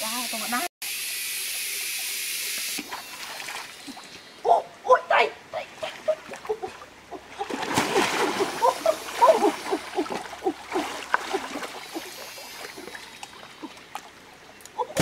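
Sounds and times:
water splashing and sloshing: 2.8 - 15.0.

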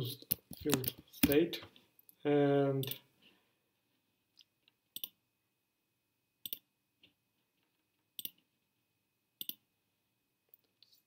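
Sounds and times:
computer mouse clicks: 0.2 - 1.4, 4.4 - 5.2, 6.4 - 6.7, 8.2 - 8.4, 9.4 - 9.6.

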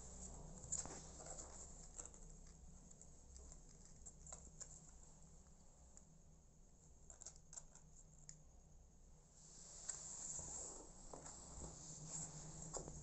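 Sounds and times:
soft rustles: 0.0 - 5.2, 9.4 - 13.0
low steady hum: 0.0 - 13.0.

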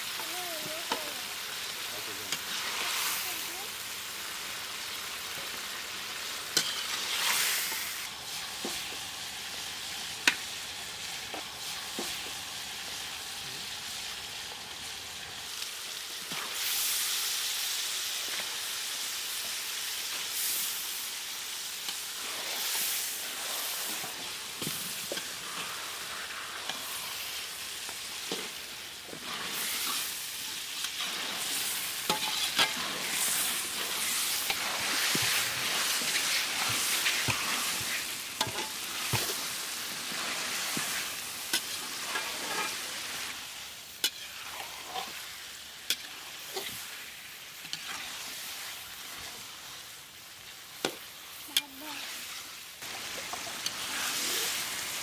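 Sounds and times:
fish sizzling in oil: 0.0 - 55.0
steel spatula scraping pan: 6.6 - 7.9, 30.9 - 39.4, 41.5 - 42.8, 44.0 - 45.2.

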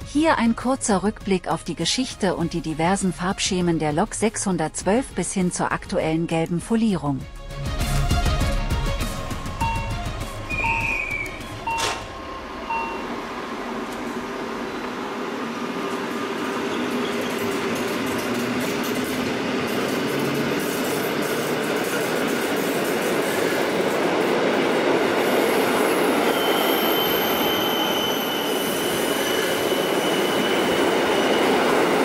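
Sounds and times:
train wheels rumbling on rail: 9.1 - 32.0
high wheel squeal: 10.5 - 12.0, 25.9 - 31.9.

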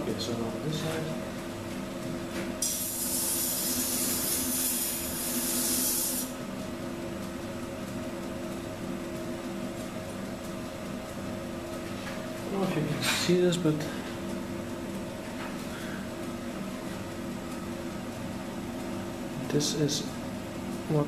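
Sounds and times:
blade grinding hiss: 2.6 - 6.3.

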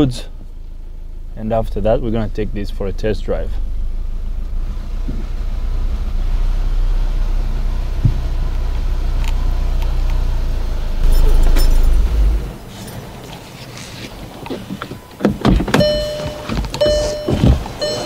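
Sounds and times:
diesel car engine idling: 0.0 - 13.6, 14.2 - 18.0.

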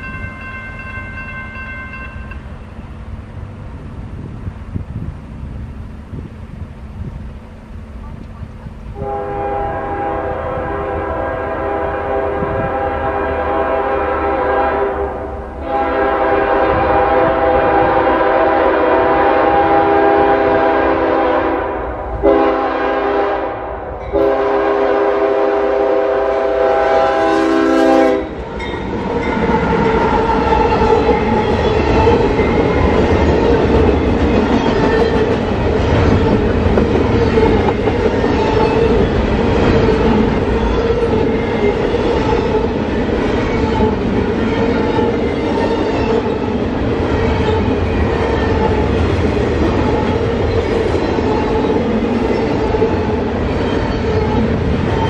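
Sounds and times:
wheels clacking on rails: 0.0 - 9.1, 28.1 - 55.0
locomotive air horn blasts: 9.0 - 28.4.

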